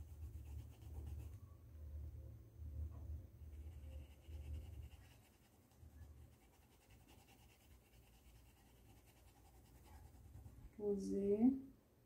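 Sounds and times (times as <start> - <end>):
paintbrush rubbing on fabric: 0.0 - 1.4, 3.6 - 10.7.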